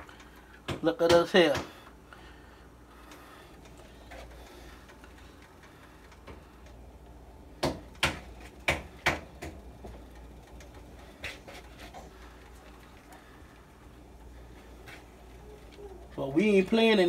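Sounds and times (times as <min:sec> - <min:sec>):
low steady hum: 0:00.0 - 0:17.0
clicks and knocks at baking tray: 0:07.6 - 0:09.6.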